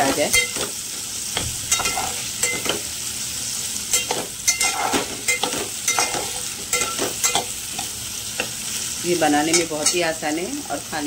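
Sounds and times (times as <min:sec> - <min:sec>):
onions sizzling in oil: 0:00.0 - 0:11.0
metal spatula scraping pot: 0:01.7 - 0:02.8, 0:03.9 - 0:07.9.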